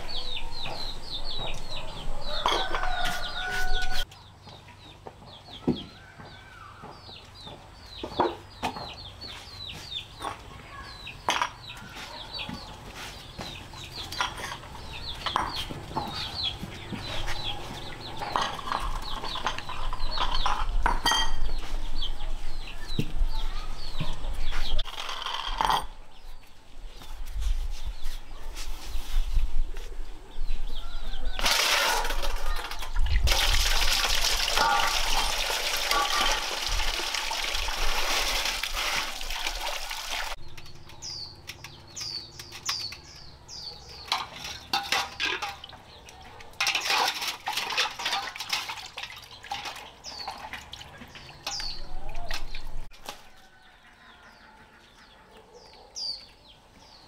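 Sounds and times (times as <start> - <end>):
running water rushing: 33.0 - 40.4.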